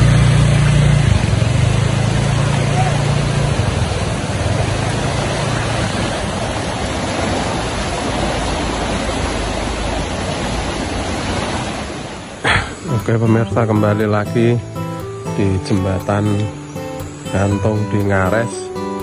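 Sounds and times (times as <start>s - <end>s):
motorbike engine humming: 0.0s - 7.7s, 12.5s - 19.0s
river rushing: 0.0s - 19.0s.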